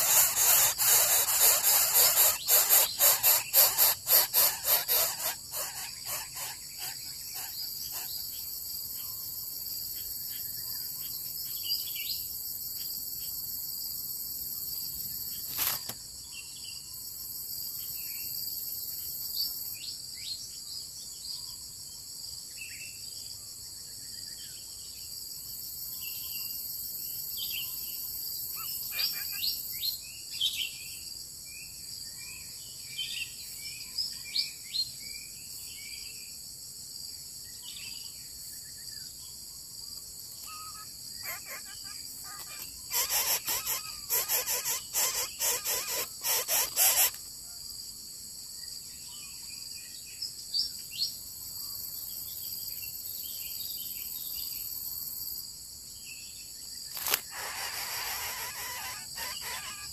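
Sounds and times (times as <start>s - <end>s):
high-pitched insect drone: 0.0s - 11.4s, 40.4s - 47.3s, 56.9s - 59.9s
short insect chirps: 0.0s - 20.4s, 37.7s - 47.6s, 56.0s - 59.9s
sharp click: 56.9s - 57.3s.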